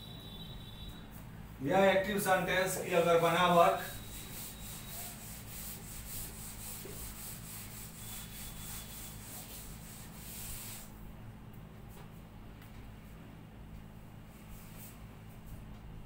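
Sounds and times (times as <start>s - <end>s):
duster rubbing on blackboard: 2.2s - 11.0s.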